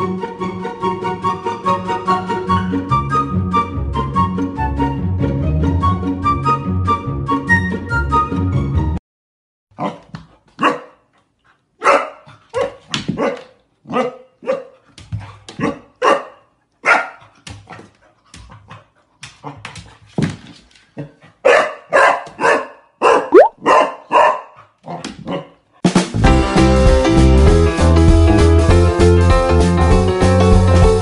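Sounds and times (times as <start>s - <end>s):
puppy barking: 9.8s - 11.1s, 11.8s - 14.8s, 15.6s - 17.3s, 21.4s - 25.6s.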